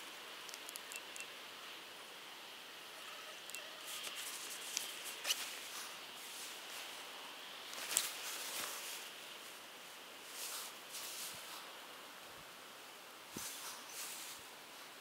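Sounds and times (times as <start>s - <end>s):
hissy outdoor background: 0.0s - 15.0s
short crackles and clicks: 0.4s - 1.3s
leaves rustling: 3.0s - 12.1s, 13.3s - 15.0s.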